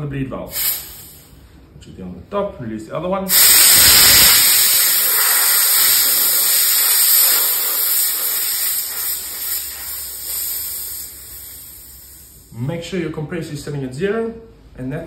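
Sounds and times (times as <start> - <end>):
air hissing from a valve: 0.5 - 1.4, 3.3 - 12.6.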